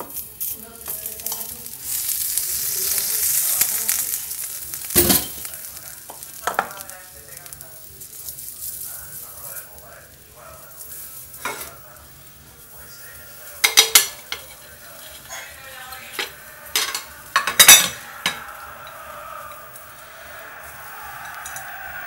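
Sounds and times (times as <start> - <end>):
popcorn rustling: 0.0 - 21.5
metal pot clanking: 4.8 - 5.5, 13.6 - 14.6, 16.0 - 19.9.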